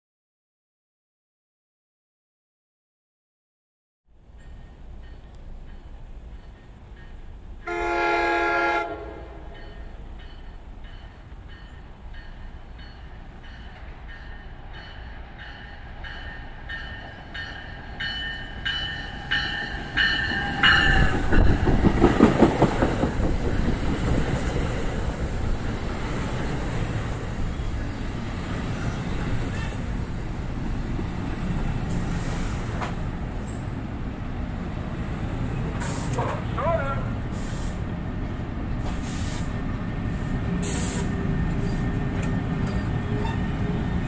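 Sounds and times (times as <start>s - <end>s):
train horn blast: 7.6s - 9.8s, 43.0s - 43.8s
locomotive bell ringing: 9.2s - 22.0s
train wheels clattering: 16.2s - 27.0s.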